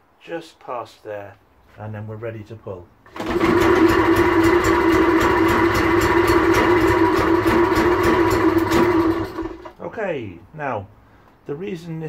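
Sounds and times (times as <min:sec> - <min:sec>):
pull cord starting engine: 0:03.0 - 0:09.8
two-stroke engine running: 0:03.1 - 0:09.7.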